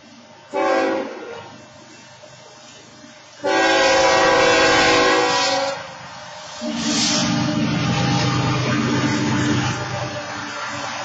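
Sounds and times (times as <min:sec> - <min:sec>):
locomotive air horn blasts: 0:00.5 - 0:01.5, 0:03.4 - 0:05.9.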